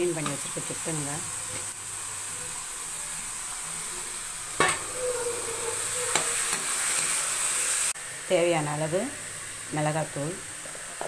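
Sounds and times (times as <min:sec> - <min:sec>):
oil sizzling in a pan: 0:00.0 - 0:11.0
knock against the pan: 0:04.6 - 0:04.9.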